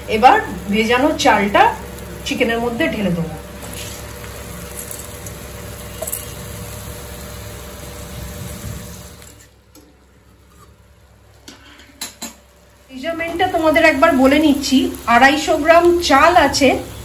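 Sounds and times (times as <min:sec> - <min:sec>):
food sizzling in a wok: 0:00.0 - 0:17.0
spatula scraping: 0:03.6 - 0:05.3, 0:10.3 - 0:10.8.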